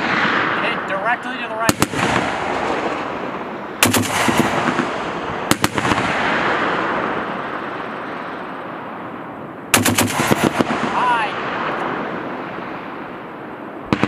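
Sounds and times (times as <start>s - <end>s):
gunshot echoes: 0.0s - 7.6s, 9.7s - 12.4s.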